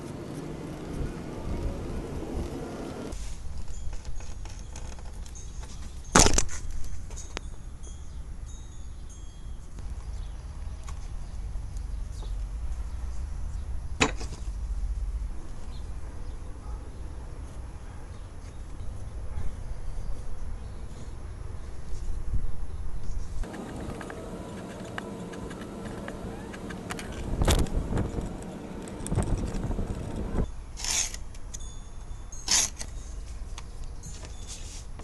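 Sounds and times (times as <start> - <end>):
low steady hum: 23.4 - 30.5.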